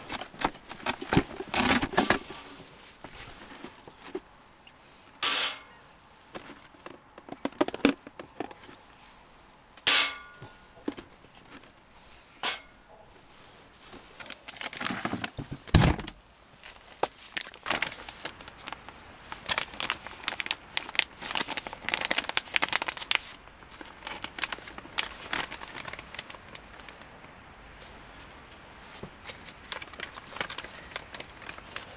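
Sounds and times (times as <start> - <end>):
plastic bag crinkling: 0.0 - 4.3, 14.1 - 27.2, 29.2 - 31.9.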